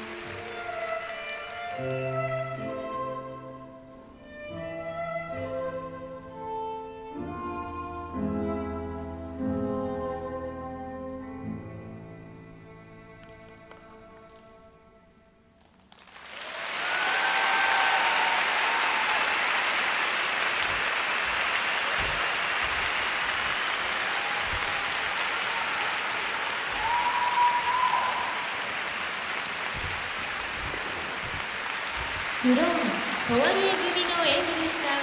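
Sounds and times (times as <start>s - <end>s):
audience applauding: 0.0s - 2.1s, 15.6s - 35.0s
music: 0.0s - 15.8s, 32.5s - 35.0s.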